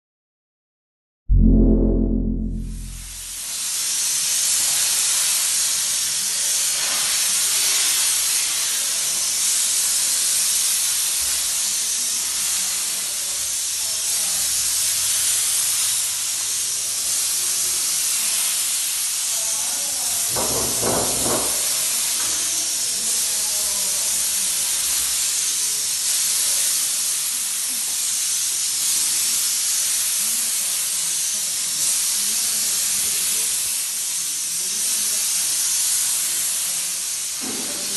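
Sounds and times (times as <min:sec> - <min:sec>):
short pitched sound: 0:01.3 - 0:03.4
steam jet hissing: 0:11.8 - 0:37.9.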